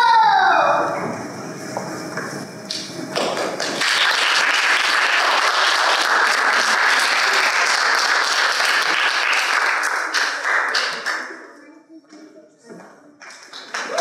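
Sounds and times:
audience applause: 2.7s - 11.4s, 13.2s - 14.0s.

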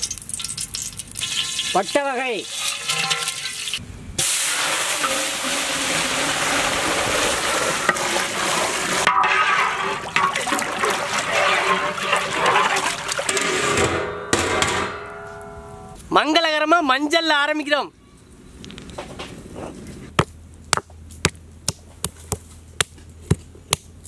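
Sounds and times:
water pouring and splashing: 0.0s - 13.8s.

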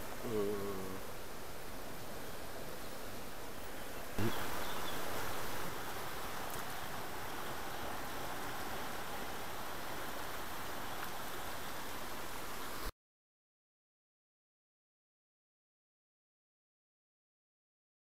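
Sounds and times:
river flowing: 0.0s - 12.9s.

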